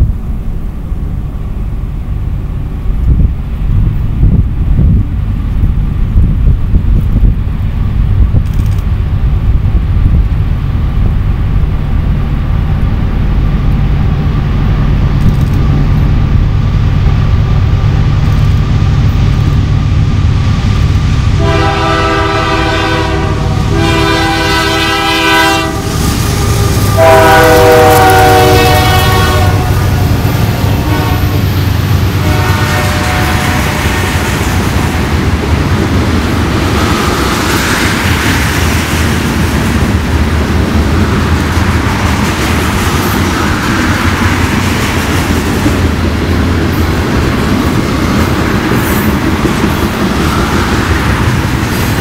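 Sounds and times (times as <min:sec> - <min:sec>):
diesel freight train rumble: 0:00.0 - 0:52.0
locomotive air horn blasts: 0:21.4 - 0:31.4, 0:32.2 - 0:34.1.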